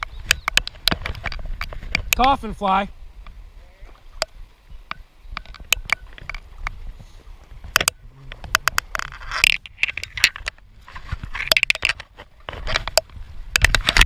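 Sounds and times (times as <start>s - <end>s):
pincers clicking on camera case: 7.7s - 10.6s.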